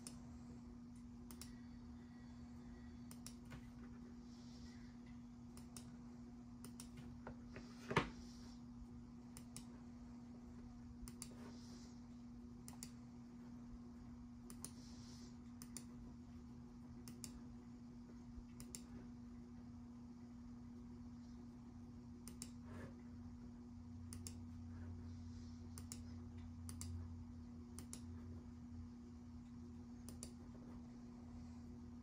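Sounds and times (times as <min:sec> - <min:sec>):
faint mouse clicks: 0:01.2 - 0:01.7, 0:03.0 - 0:03.6, 0:05.5 - 0:06.0, 0:06.6 - 0:07.1, 0:09.3 - 0:09.7, 0:11.0 - 0:11.4, 0:14.4 - 0:14.8, 0:15.5 - 0:16.0, 0:17.0 - 0:17.4, 0:18.5 - 0:18.9, 0:22.2 - 0:22.6, 0:24.1 - 0:24.5, 0:25.8 - 0:27.0, 0:30.0 - 0:30.4.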